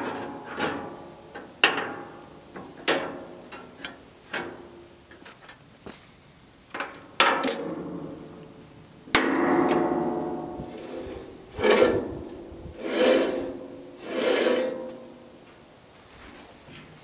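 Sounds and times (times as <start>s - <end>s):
ringing metal scrapes: 9.2s - 15.4s.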